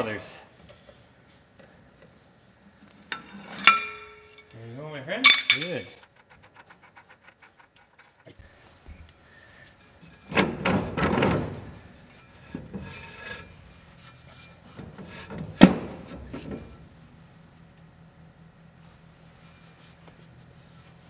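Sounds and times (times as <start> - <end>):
rag scrubbing inside brake drum: 11.4 - 16.8.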